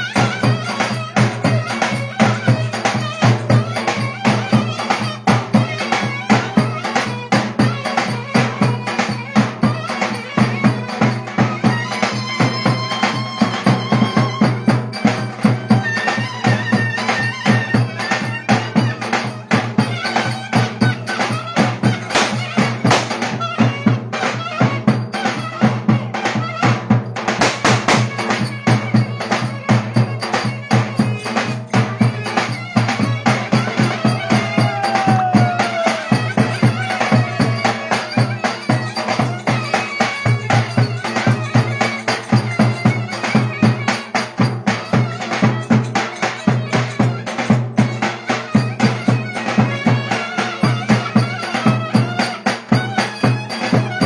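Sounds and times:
drums beating dance rhythm: 0.0s - 54.0s
shrill reed wind instrument: 0.0s - 54.0s.

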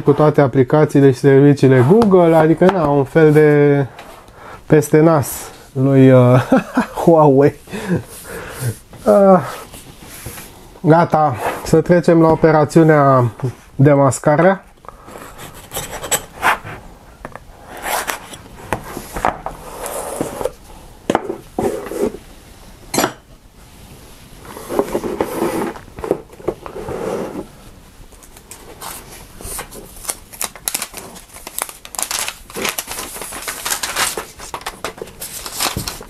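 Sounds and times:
cardboard box scraping and rustling: 24.5s - 25.9s
paper and plastic film crinkling: 28.2s - 36.0s.

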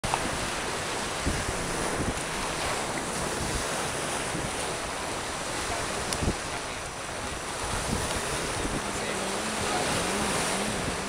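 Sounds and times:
beach surf rushing: 0.0s - 11.0s
wind buffeting microphone: 0.0s - 11.0s.

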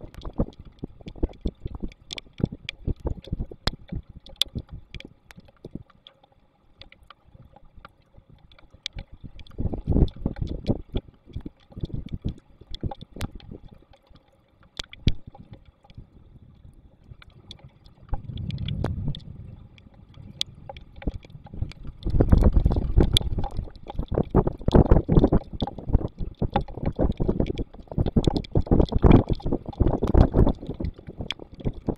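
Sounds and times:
raindrop ticks: 0.0s - 16.0s, 17.1s - 31.9s
low rumble: 16.5s - 23.8s
wind buffeting microphone: 17.3s - 31.9s.

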